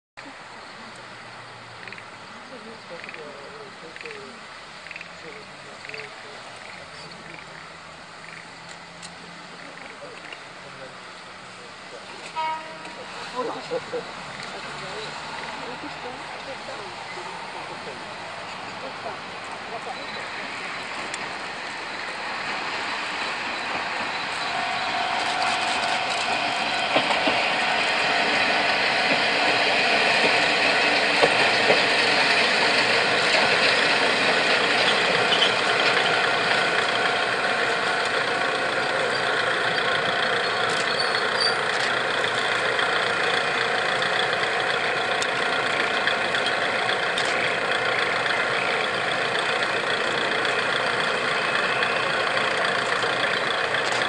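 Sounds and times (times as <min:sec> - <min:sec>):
diesel railcar engine running: 0:00.2 - 0:54.0.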